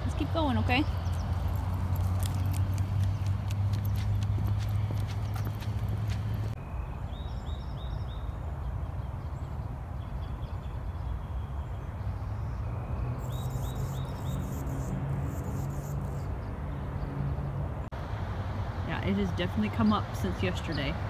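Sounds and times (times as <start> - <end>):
small bird chirping: 13.2 - 16.3.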